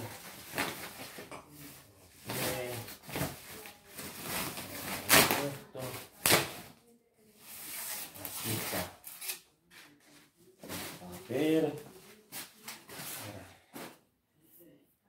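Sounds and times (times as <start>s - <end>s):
packing sheet rustling: 0.0s - 6.8s.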